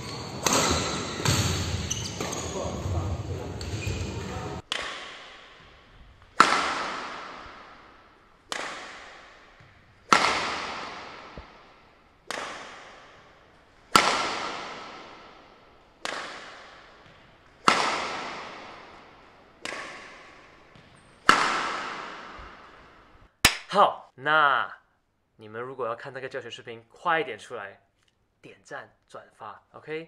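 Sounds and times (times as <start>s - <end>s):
rackets hitting shuttlecock: 0.0s - 2.9s, 3.5s - 23.7s.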